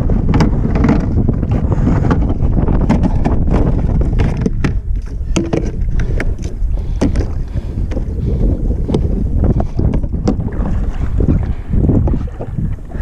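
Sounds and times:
water splashing against hull: 0.0s - 13.0s
wind on microphone: 0.0s - 13.0s
boat clicks and knocks: 0.2s - 8.0s, 8.8s - 10.5s.

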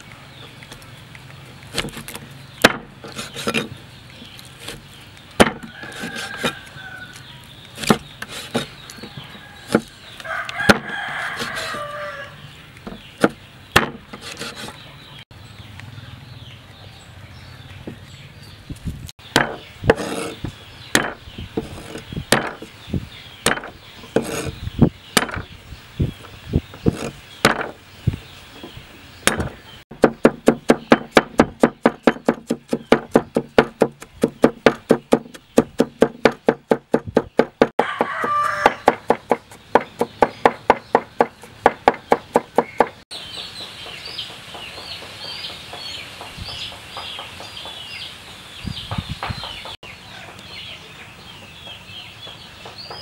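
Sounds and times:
knife chopping on wooden board: 1.7s - 3.7s, 5.4s - 6.6s, 7.8s - 8.7s, 13.2s - 14.7s, 19.4s - 20.4s, 21.0s - 22.7s, 23.4s - 24.6s, 26.9s - 27.8s, 29.3s - 43.0s.

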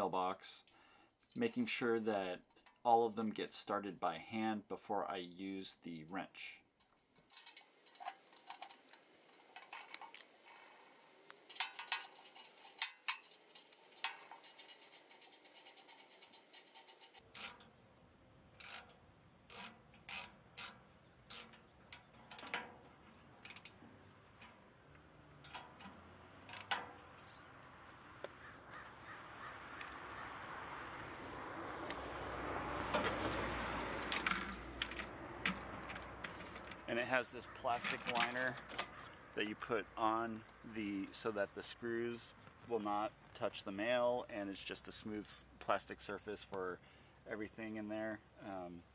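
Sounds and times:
ratchet wrench clicking: 11.5s - 17.7s, 18.6s - 22.6s, 23.4s - 23.8s, 26.4s - 26.8s.

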